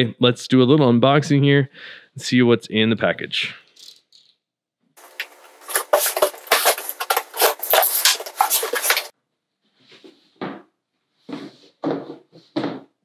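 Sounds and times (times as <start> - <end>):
cardboard scuffs and thumps: 5.0 - 9.1
cardboard tearing and crackling: 5.1 - 9.1.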